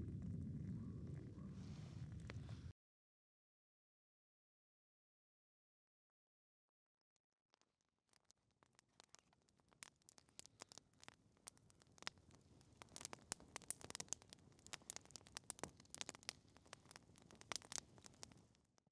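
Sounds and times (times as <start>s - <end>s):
campfire crackling: 0.0s - 2.7s, 8.2s - 18.8s.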